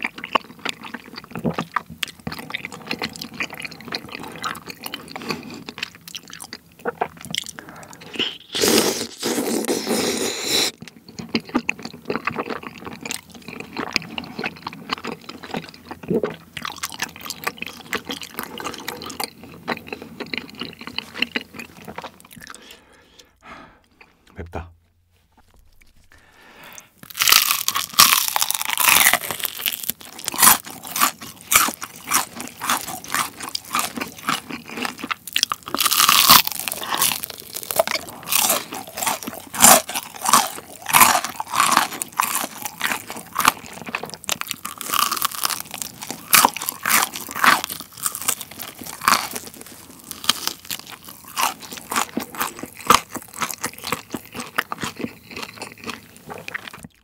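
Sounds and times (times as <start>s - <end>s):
crunching fried chicken: 0.0s - 22.8s, 27.0s - 57.0s.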